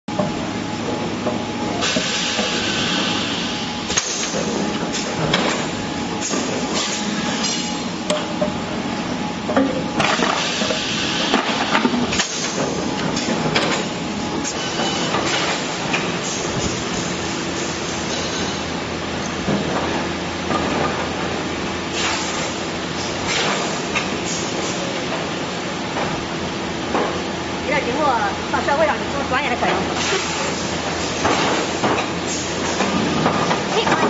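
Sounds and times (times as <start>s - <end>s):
machine clunks and clicks: 9.5s - 16.8s.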